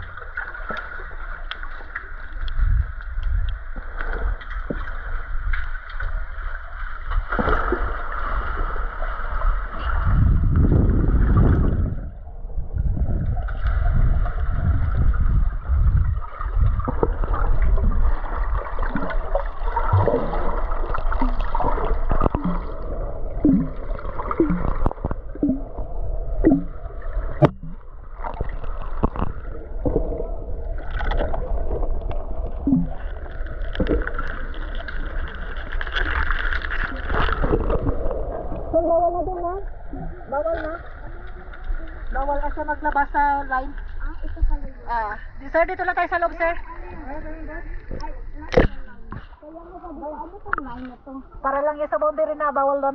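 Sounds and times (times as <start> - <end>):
underwater water rumble: 0.0 - 52.9
bubbling blips: 18.8 - 33.0.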